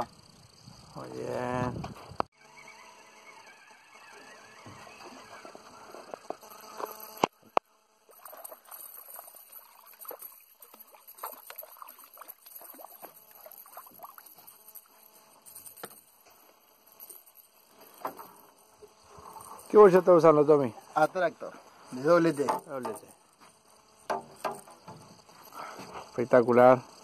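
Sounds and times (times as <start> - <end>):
fish splashing at water surface: 8.1 - 14.4
sharp knocks: 24.1 - 25.0.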